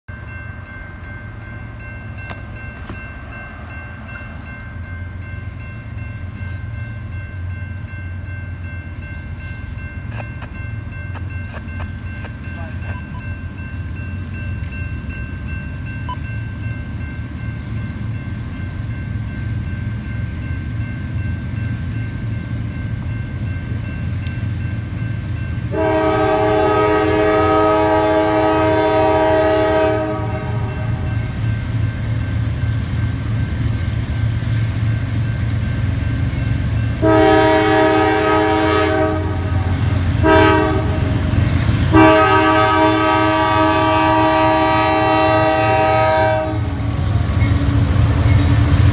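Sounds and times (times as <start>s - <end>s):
crossing bell ringing: 0.1s - 48.9s
locomotive engine rumble: 0.2s - 48.9s
locomotive air horn blasts: 25.7s - 31.1s, 37.0s - 41.2s, 41.9s - 46.8s.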